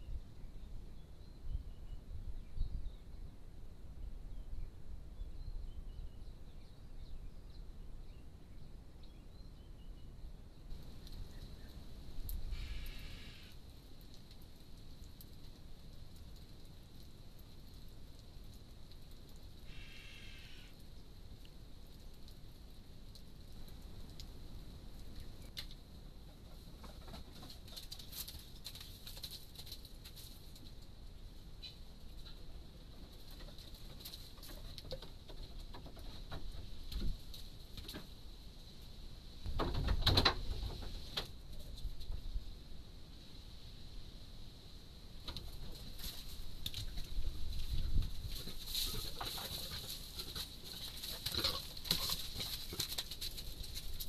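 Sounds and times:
animal scrambling over rocks: 26.4 - 30.8, 32.2 - 38.1, 45.2 - 54.0.

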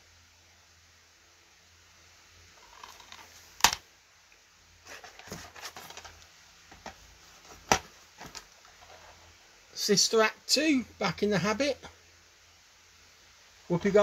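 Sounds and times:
rustling: 2.6 - 3.7, 4.8 - 9.5
plastic cases clacking: 2.6 - 3.8, 4.9 - 8.5.

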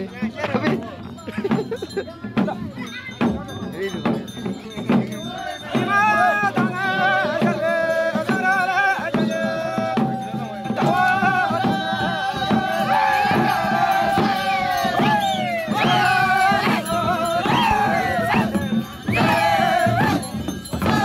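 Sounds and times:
light percussion rattling: 0.0 - 21.0
frame drum beats: 0.1 - 21.0
several voices folk singing: 4.7 - 21.0.

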